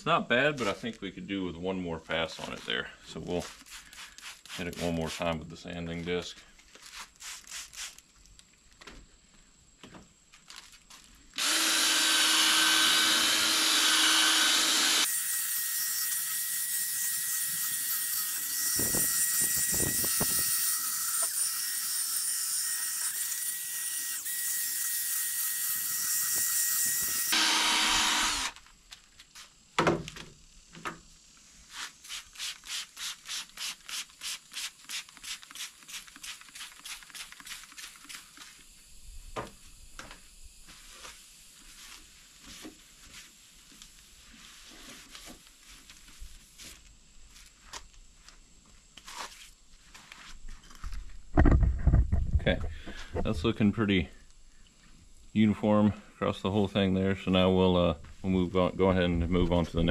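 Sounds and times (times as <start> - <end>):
spray bottle squirts: 3.5 - 5.3, 6.8 - 8.0, 31.7 - 38.6
cordless drill sanding plastic: 10.9 - 28.7.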